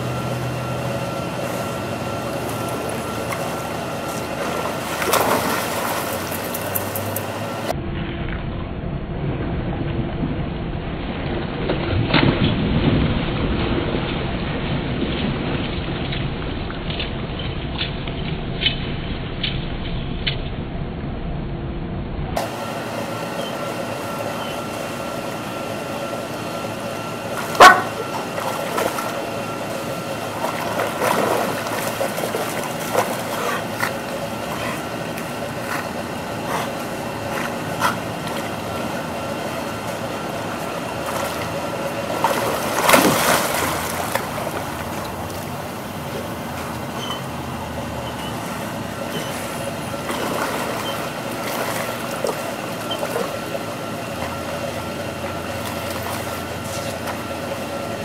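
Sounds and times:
dogs splashing in pool water: 0:00.0 - 0:07.7, 0:22.4 - 0:58.0
steady background hum: 0:00.0 - 0:58.0.

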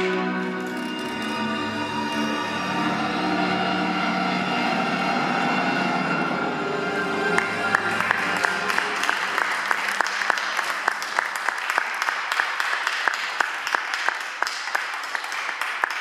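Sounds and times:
small audience applause: 0:07.3 - 0:16.0.

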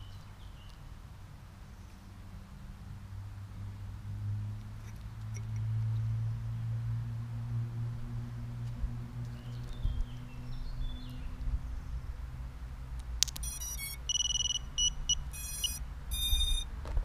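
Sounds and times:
motor start-up beeps: 0:13.4 - 0:16.7.

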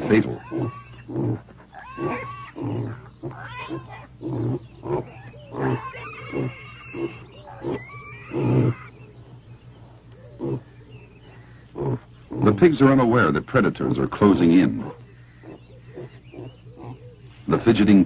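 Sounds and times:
short animal calls: 0:00.4 - 0:09.0.

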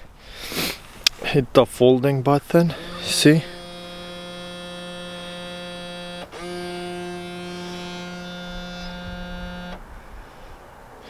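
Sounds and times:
mirror motor humming: 0:02.7 - 0:09.8.

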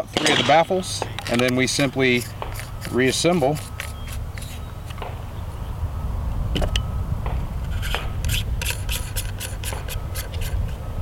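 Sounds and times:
small metal clicks and scrapes: 0:00.2 - 0:05.0, 0:07.6 - 0:10.8
steady low rumble: 0:04.2 - 0:11.0.

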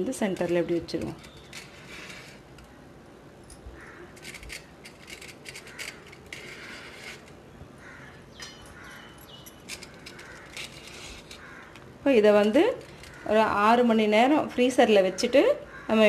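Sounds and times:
aluminium foil crinkling: 0:09.5 - 0:13.3.

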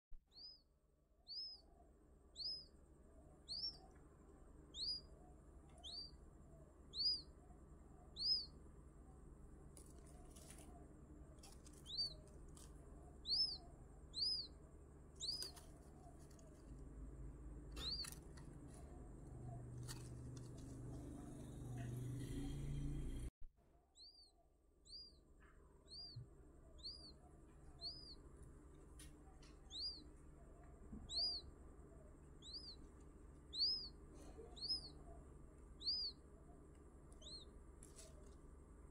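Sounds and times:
quail chick peeping: 0:00.3 - 0:23.3, 0:24.0 - 0:38.9
low rumble: 0:16.7 - 0:23.3.

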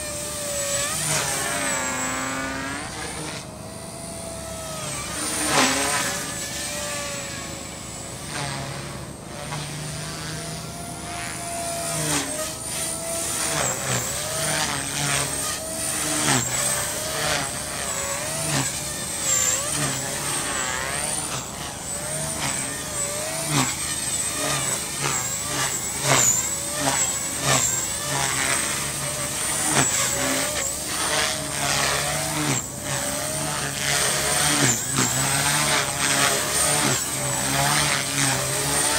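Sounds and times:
rc helicopter rotor whine: 0:00.0 - 0:38.9.

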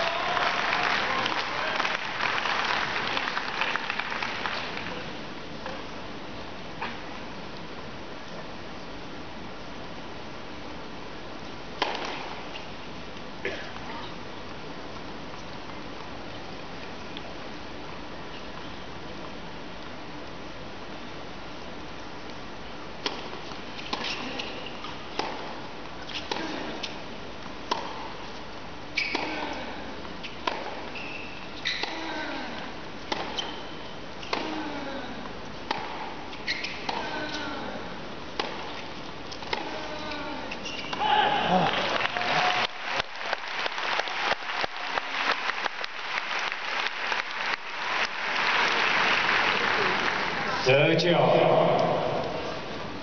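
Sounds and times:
crowd applauding: 0:00.0 - 0:05.0, 0:41.4 - 0:50.7
racket hitting tennis ball: 0:11.8 - 0:12.4, 0:23.0 - 0:27.0, 0:27.6 - 0:28.2, 0:29.0 - 0:29.6, 0:30.4 - 0:31.0, 0:31.6 - 0:32.2, 0:33.0 - 0:33.6, 0:34.2 - 0:34.6, 0:35.6 - 0:37.5, 0:38.3 - 0:41.1
tennis shoes squeaking on court: 0:23.4 - 0:25.2, 0:26.0 - 0:27.0, 0:27.8 - 0:29.6, 0:30.2 - 0:32.1, 0:33.0 - 0:34.5, 0:35.6 - 0:37.4, 0:38.4 - 0:41.0.

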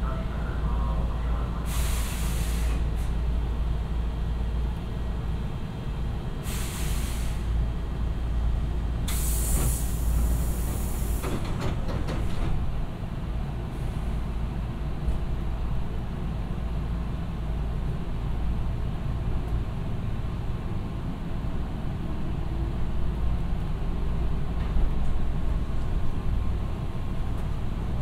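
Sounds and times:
compressed air hissing: 0:01.7 - 0:02.8, 0:09.1 - 0:11.2.

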